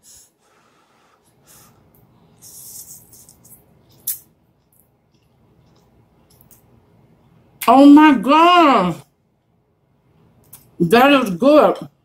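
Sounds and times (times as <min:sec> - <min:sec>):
chewing: 0:03.2 - 0:06.7.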